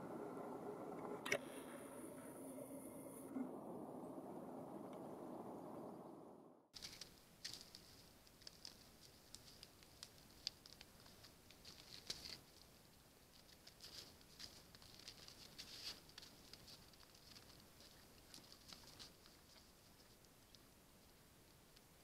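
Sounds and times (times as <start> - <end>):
deer feeding on stony ground: 6.8 - 22.0.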